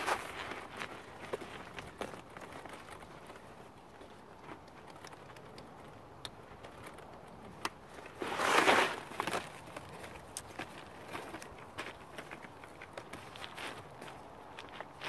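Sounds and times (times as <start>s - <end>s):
plastic scraping rustle: 7.9s - 13.9s.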